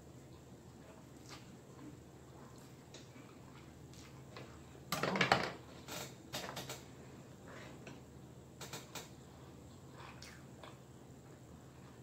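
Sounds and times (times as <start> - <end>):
chewing: 0.3 - 4.4, 9.7 - 12.0.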